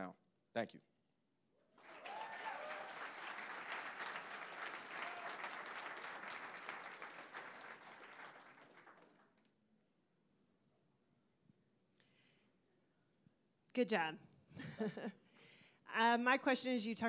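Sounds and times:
audience applauding: 0:01.8 - 0:09.5.

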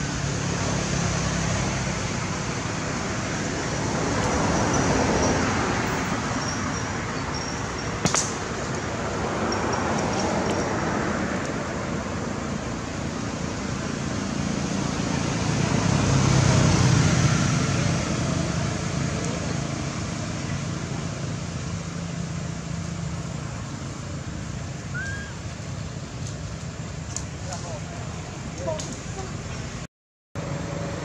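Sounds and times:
vehicle passing by: 0:00.0 - 0:25.7, 0:30.4 - 0:31.0
road traffic rumble and hiss: 0:00.0 - 0:31.0.

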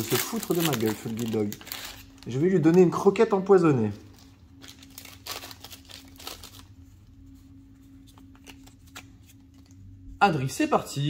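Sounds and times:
trading cards rustling: 0:00.0 - 0:03.0, 0:04.0 - 0:09.9
foil wrapper crinkling: 0:00.0 - 0:03.1, 0:04.0 - 0:06.9
faint steady hum: 0:00.0 - 0:11.0.

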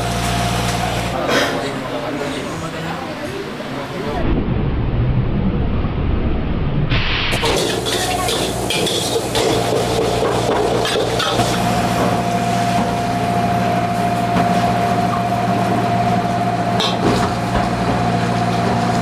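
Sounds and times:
machine hum with whine: 0:04.1 - 0:19.0.

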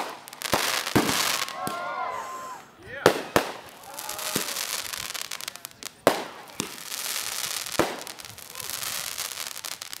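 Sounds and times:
crackling of firework stars: 0:00.0 - 0:10.0
firework bang: 0:07.8 - 0:08.6.

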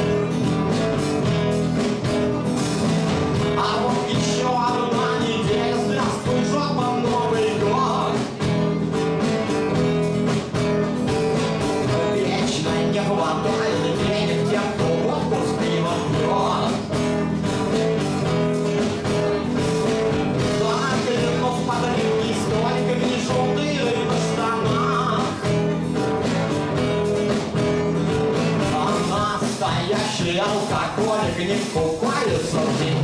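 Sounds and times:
acoustic guitar strumming: 0:00.0 - 0:33.0
man singing: 0:03.4 - 0:08.8, 0:11.6 - 0:17.4, 0:18.6 - 0:26.2, 0:28.2 - 0:33.0.

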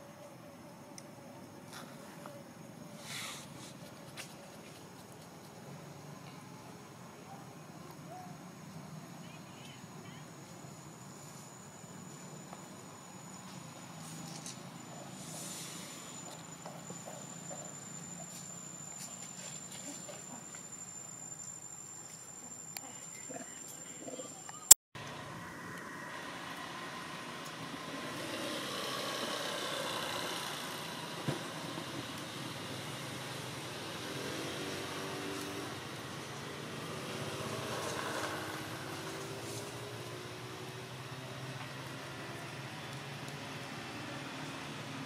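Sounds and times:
background hiss: 0:00.0 - 0:24.8
distant engine hum: 0:00.0 - 0:45.0
high-pitched insect drone: 0:08.8 - 0:24.7.

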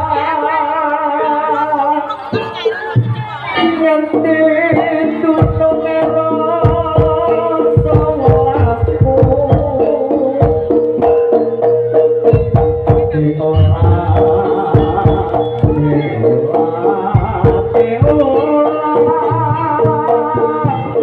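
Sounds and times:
hand drums beating: 0:02.3 - 0:21.0
wavering melody line: 0:08.1 - 0:16.8.

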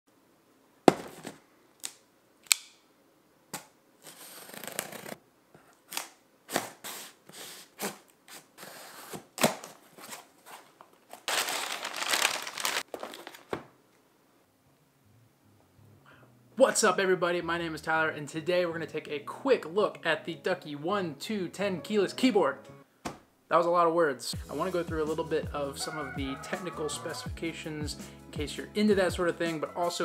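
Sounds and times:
tape and cardboard tearing: 0:03.5 - 0:05.2, 0:05.8 - 0:13.6
box cutter slicing tape: 0:03.6 - 0:05.2, 0:05.9 - 0:09.8.

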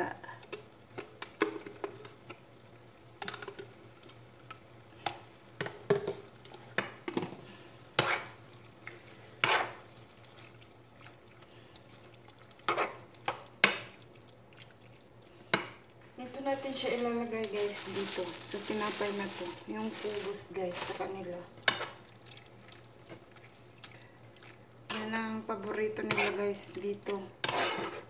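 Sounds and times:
faint steady hum: 0:00.0 - 0:28.0
spoon scraping frying pan: 0:08.0 - 0:09.9, 0:12.6 - 0:14.0, 0:21.6 - 0:22.0, 0:25.9 - 0:28.0.

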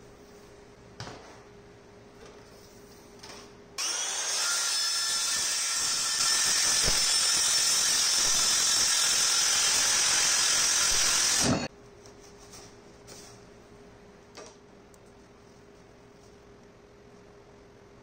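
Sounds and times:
circular saw cutting plastic pipe: 0:03.8 - 0:11.7.

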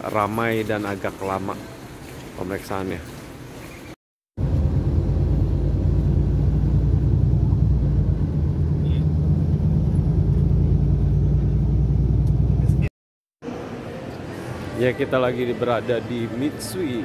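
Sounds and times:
road noise: 0:00.0 - 0:17.0
bus engine rumble: 0:04.4 - 0:12.9.

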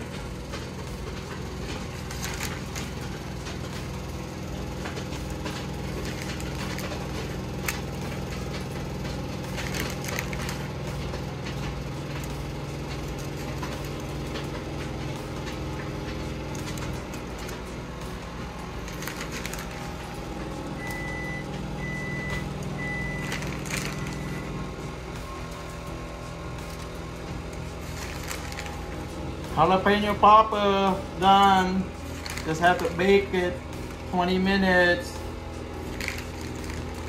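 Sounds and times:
steady low hum: 0:00.0 - 0:37.0
foil crinkling: 0:01.6 - 0:04.0, 0:05.2 - 0:12.4, 0:18.8 - 0:20.2, 0:23.2 - 0:24.4, 0:26.6 - 0:30.6, 0:32.0 - 0:34.2, 0:35.2 - 0:37.0.

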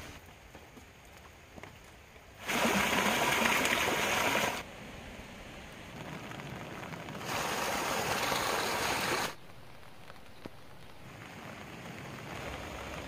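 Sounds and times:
steady hiss of rain: 0:00.0 - 0:13.0
stream rushing over rocks: 0:02.4 - 0:04.7, 0:06.0 - 0:13.0.

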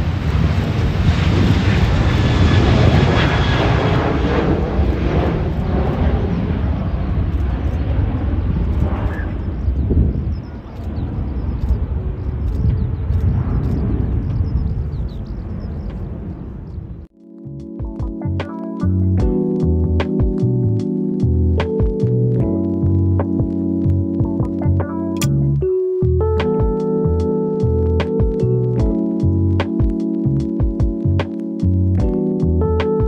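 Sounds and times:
jet airliner taking off: 0:00.0 - 0:17.1
birds chirping faintly: 0:05.6 - 0:17.1.

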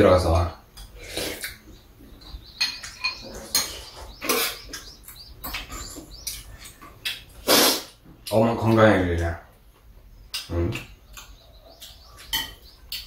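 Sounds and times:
people chewing: 0:00.7 - 0:08.7, 0:09.6 - 0:13.0
utensils clinking against bowls: 0:02.6 - 0:07.2, 0:10.4 - 0:13.0.

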